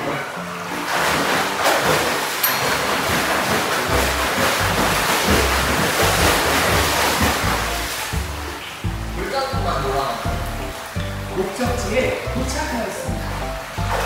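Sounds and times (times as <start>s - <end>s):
rush of churning water: 0.0s - 14.0s.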